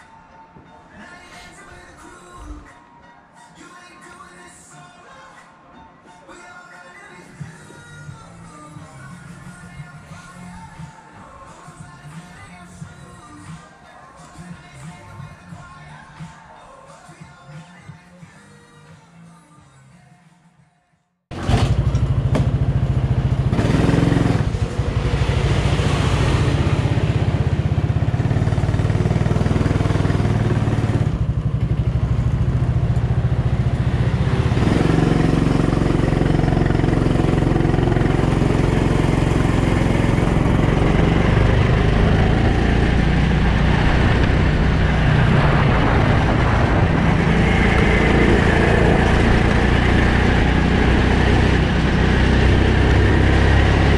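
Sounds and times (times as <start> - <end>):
go-kart engine running: 21.3 - 53.9.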